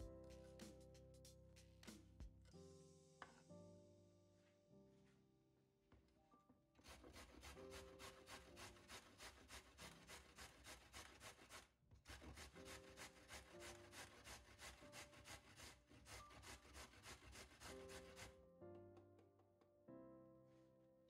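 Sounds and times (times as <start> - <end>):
soft background music: 0.0 - 5.3, 6.1 - 10.2, 12.1 - 21.0
carrot grating on metal grater: 6.8 - 18.3.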